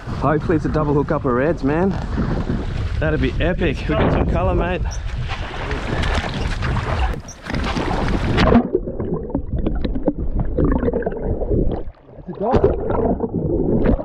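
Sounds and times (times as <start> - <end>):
water splashing: 5.0 - 14.0
underwater clicks: 5.9 - 14.0
muffled underwater gurgling: 6.7 - 14.0
bubbles: 7.5 - 14.0.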